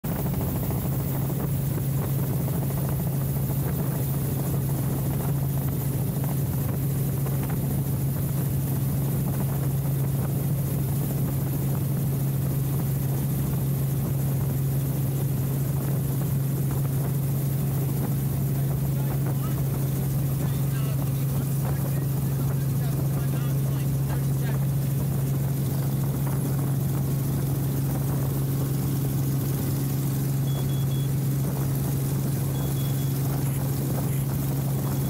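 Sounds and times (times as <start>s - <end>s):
helicopter rotor and engine hum: 0.0s - 35.0s
wind rushing: 23.8s - 30.4s.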